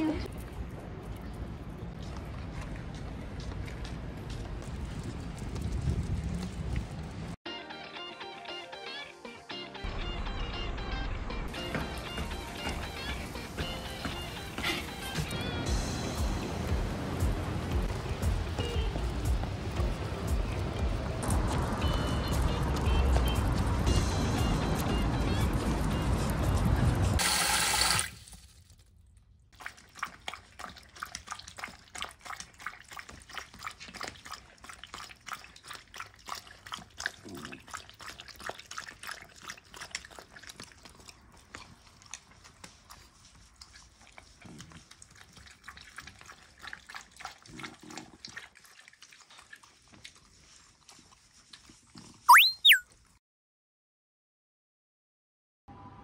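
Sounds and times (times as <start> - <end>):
dogs lapping water: 29.5 - 52.2
whistle-like tone: 52.3 - 52.8.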